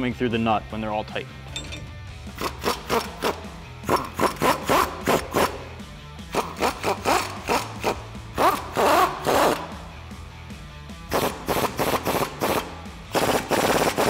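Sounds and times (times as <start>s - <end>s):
impact wrench spinning: 6.3s - 9.7s, 11.1s - 14.0s.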